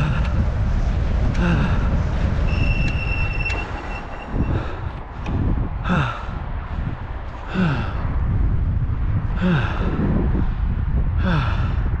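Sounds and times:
wind rumble on microphone: 0:00.0 - 0:12.0.

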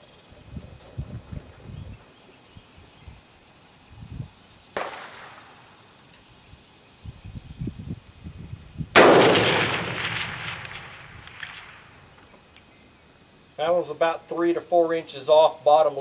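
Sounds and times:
loud rifle shot with echo: 0:04.8 - 0:05.6, 0:08.9 - 0:12.0
faint sharp shot: 0:04.8 - 0:05.7, 0:09.0 - 0:12.3.

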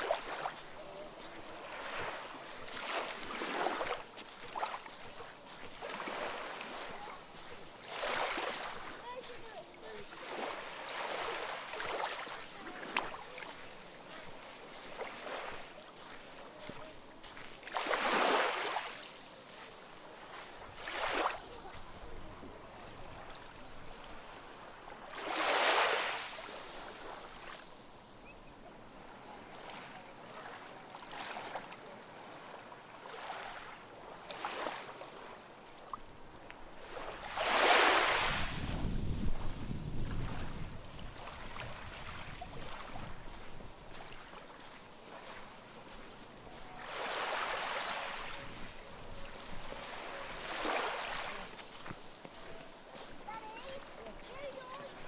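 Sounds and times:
sea waves washing onto shore: 0:00.0 - 0:55.0.

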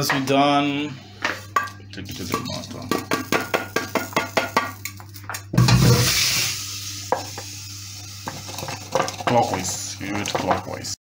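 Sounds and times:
utensil knocking on a pan: 0:02.3 - 0:04.8
spices rattling into a mortar: 0:02.9 - 0:05.4.

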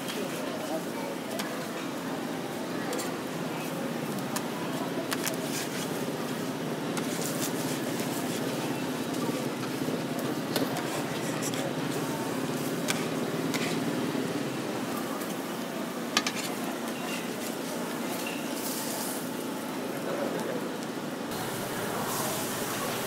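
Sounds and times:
metal spatula scraping and tapping: 0:16.2 - 0:16.6.

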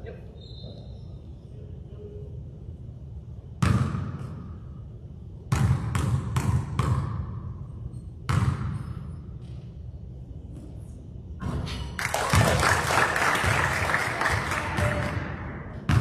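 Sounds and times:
basketball bouncing on gym floor: 0:03.6 - 0:04.5, 0:05.5 - 0:07.5, 0:08.2 - 0:09.6, 0:12.3 - 0:12.6, 0:14.3 - 0:16.0.

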